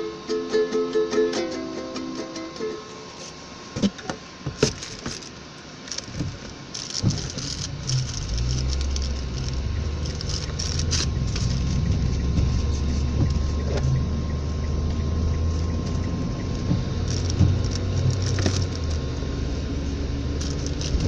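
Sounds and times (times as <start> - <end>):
car engine and road noise: 1.5 - 21.0
sharp clicks and knocks: 5.9 - 19.0.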